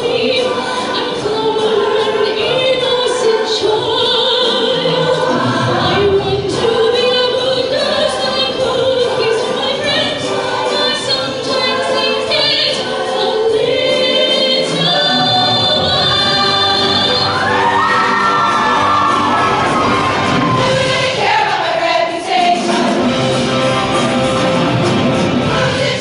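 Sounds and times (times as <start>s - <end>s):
choir singing over music: 0.0s - 26.0s.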